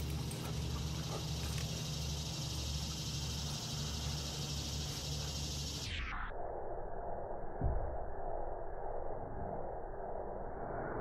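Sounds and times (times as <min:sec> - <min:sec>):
high continuous hiss: 0:00.0 - 0:07.1
low even hum: 0:00.0 - 0:11.0.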